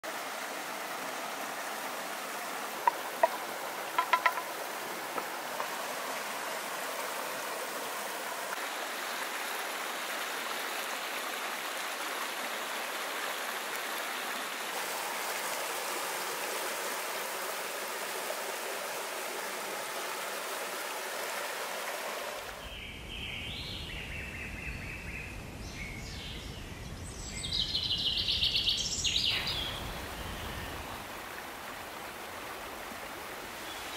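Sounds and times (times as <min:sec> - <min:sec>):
river water rushing: 0:00.0 - 0:22.6, 0:29.1 - 0:33.9
birds chirping: 0:02.7 - 0:05.9, 0:22.5 - 0:31.1.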